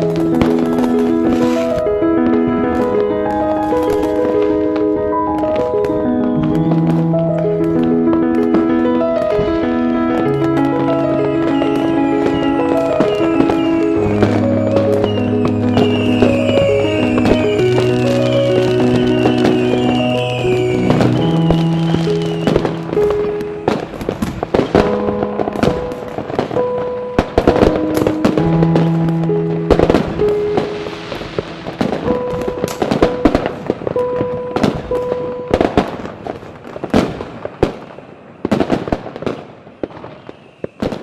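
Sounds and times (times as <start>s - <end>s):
background music of held notes: 0.0s - 36.1s
fireworks bangs and crackles: 0.0s - 41.0s.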